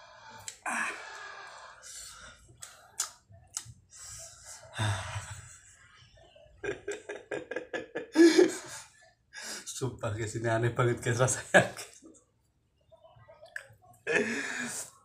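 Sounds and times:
person laughing: 6.6s - 8.8s.

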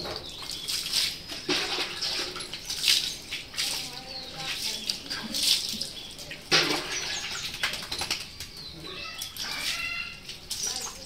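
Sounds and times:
water splashing on concrete: 0.0s - 11.0s.

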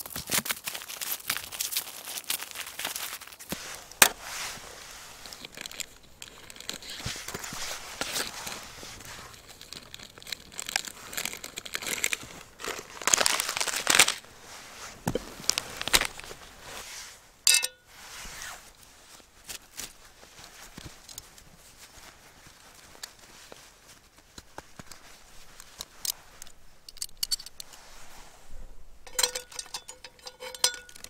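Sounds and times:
plastic packaging crinkling: 0.0s - 16.8s.

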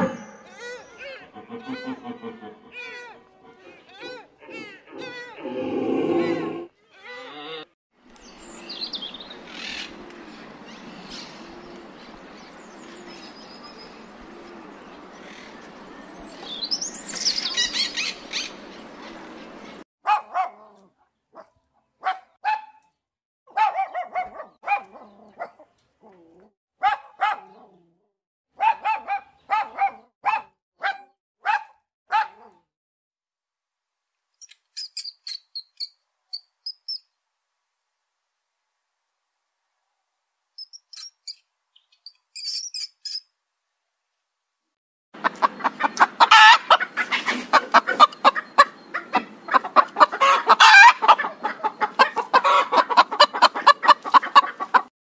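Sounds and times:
puppies yelping and whimpering: 0.0s - 5.4s
very high squeaks: 0.0s - 6.5s.

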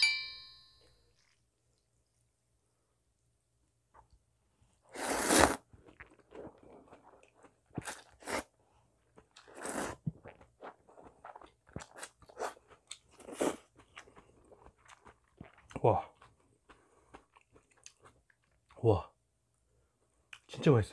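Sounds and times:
person slurping noodles: 4.9s - 8.5s, 9.4s - 12.6s
chewing sounds: 9.0s - 18.8s.

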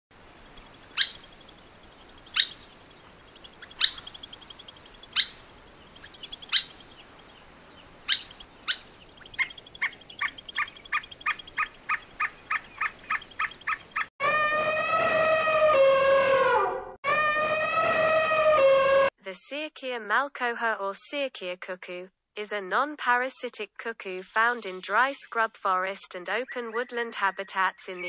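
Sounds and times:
bird calling sharp notes: 0.4s - 14.1s
loud gliding siren-like tone: 14.2s - 19.1s.

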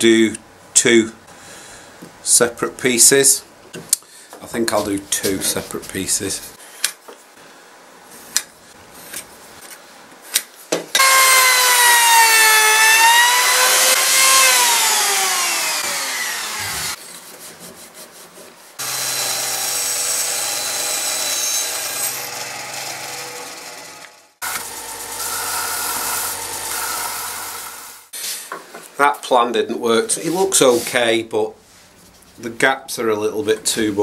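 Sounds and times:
bandsaw humming: 11.0s - 17.0s, 18.8s - 28.1s
router whining: 11.0s - 17.0s, 18.8s - 28.1s.

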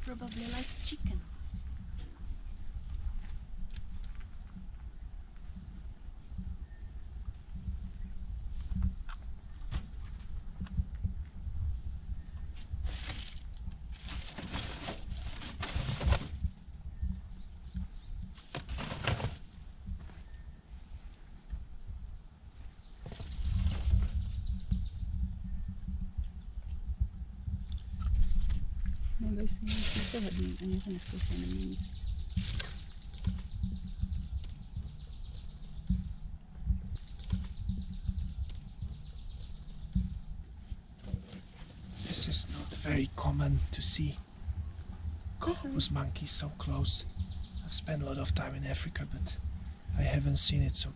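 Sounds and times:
low knocks and rumbling: 0.0s - 50.9s
plastic bags rustling: 12.8s - 16.4s, 18.5s - 19.5s, 29.4s - 31.8s.

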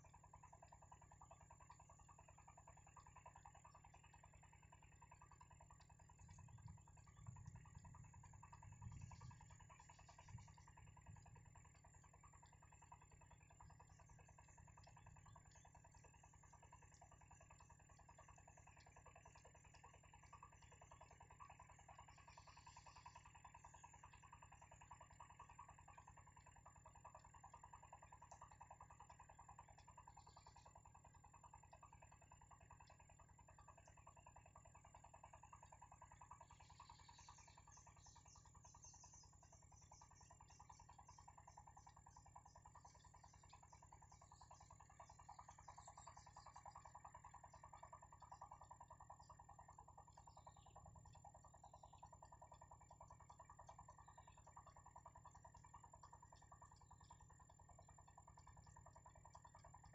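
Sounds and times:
insects pulsing buzz: 0.0s - 59.9s
low steady hum: 0.0s - 59.9s
insect high chirping: 32.0s - 59.9s.

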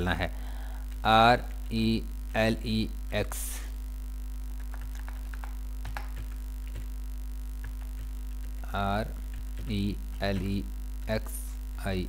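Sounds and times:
electrical mains hum: 0.0s - 12.0s
man speaking: 1.0s - 3.8s, 8.6s - 12.0s.

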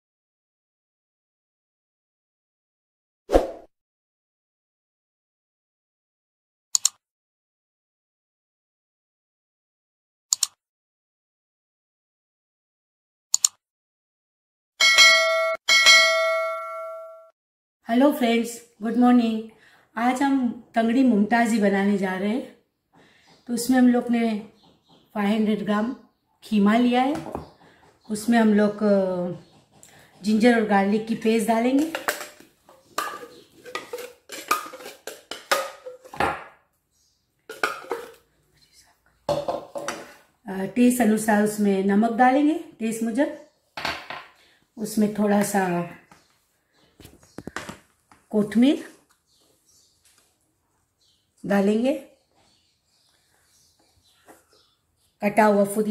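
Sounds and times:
double mouse click: 6.8s - 7.0s, 10.3s - 10.6s, 13.3s - 13.6s
notification bell chime: 14.8s - 17.3s
spoon scraping glass jar: 31.8s - 36.2s.

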